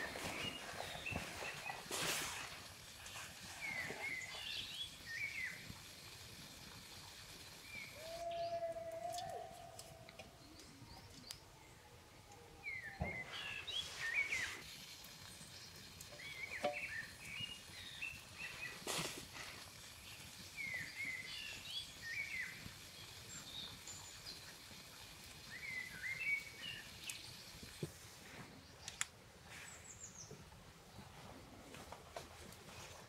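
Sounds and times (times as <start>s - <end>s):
quiet forest ambience: 0.0s - 33.0s
songbird chirping: 7.7s - 14.6s.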